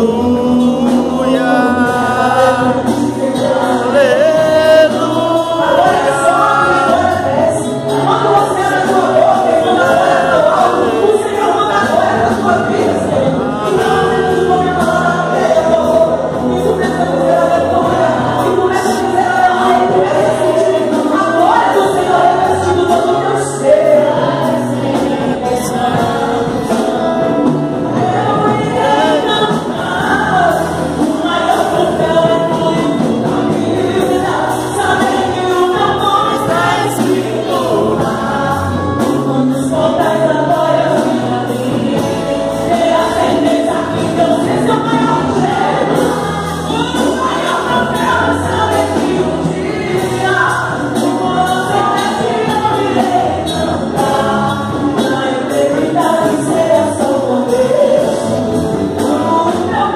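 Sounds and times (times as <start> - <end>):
band with drums: 0.0 - 59.9
woman singing lead: 0.0 - 59.9
women backing singers: 0.0 - 59.9.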